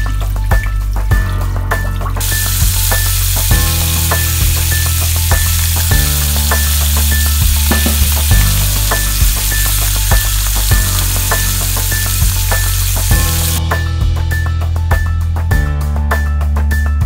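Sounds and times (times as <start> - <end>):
music with steady beat: 0.0 - 17.0
fish sizzling in frying pan: 2.2 - 13.6.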